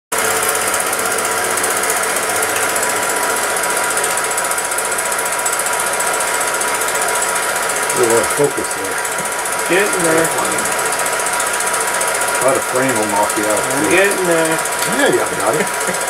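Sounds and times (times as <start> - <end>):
film projector clatter: 0.2 - 16.0
projector hum: 0.2 - 16.0.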